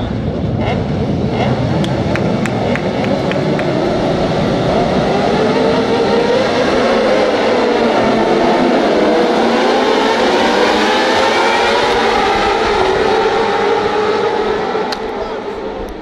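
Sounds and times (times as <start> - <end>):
motorcycles revving and accelerating: 0.0 - 16.0.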